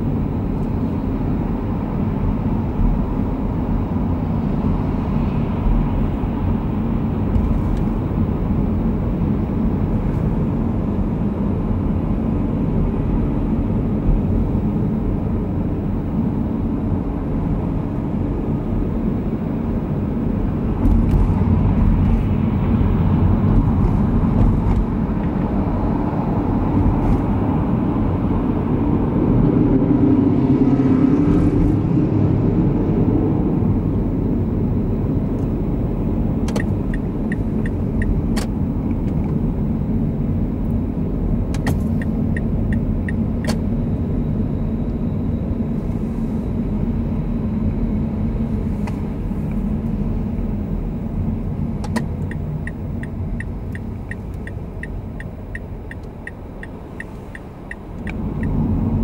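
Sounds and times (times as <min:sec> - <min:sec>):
low engine drone: 0:00.0 - 0:59.0
light ticks: 0:53.4 - 0:58.6.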